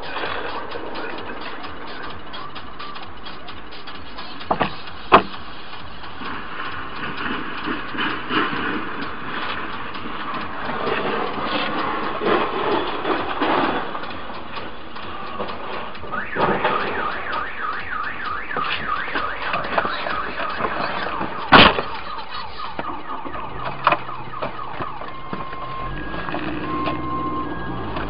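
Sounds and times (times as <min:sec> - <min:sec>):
car alarm wailing: 0:00.0 - 0:05.3, 0:16.0 - 0:28.0
rattling noise: 0:00.0 - 0:28.0.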